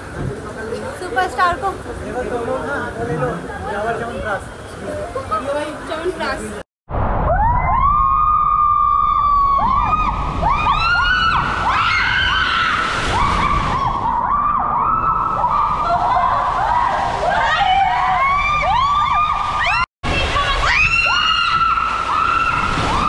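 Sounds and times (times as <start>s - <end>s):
women screaming: 7.3s - 23.0s
water rushing: 8.9s - 23.0s.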